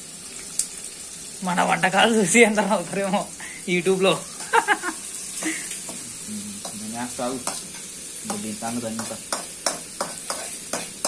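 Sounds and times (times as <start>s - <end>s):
onions sizzling in a pan: 0.0s - 11.0s
spoon scraping and knocking pan: 5.4s - 11.0s.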